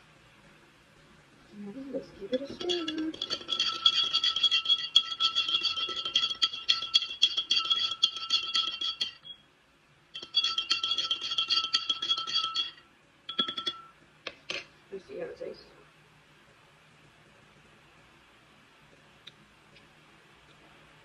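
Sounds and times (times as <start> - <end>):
spoon clinking in a glass: 2.3 - 9.4, 10.2 - 14.0.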